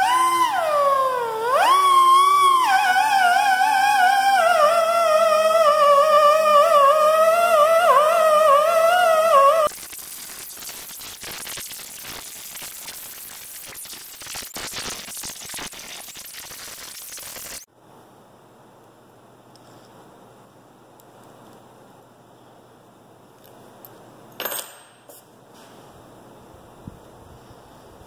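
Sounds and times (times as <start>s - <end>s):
die grinder hissing and scratching: 9.6s - 17.7s.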